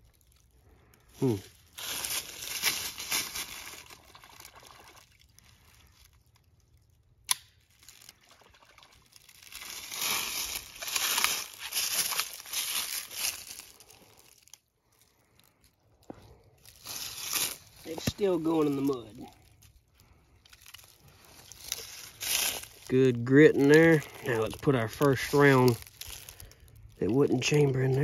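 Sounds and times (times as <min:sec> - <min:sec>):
footsteps crunching dry leaves: 0:01.1 - 0:06.7, 0:09.0 - 0:28.0
wet sloshing and squelching: 0:01.9 - 0:06.6, 0:07.7 - 0:14.4.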